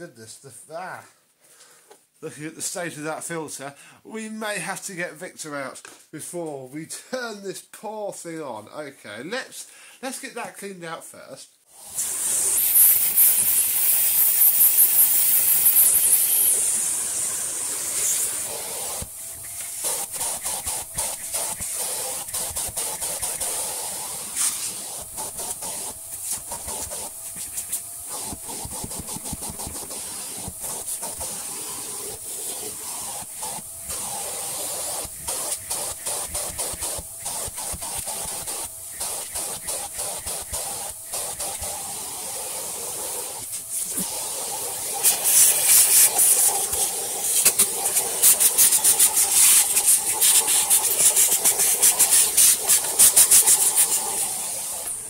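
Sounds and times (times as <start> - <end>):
vacuum cleaner running: 11.7 - 55.0.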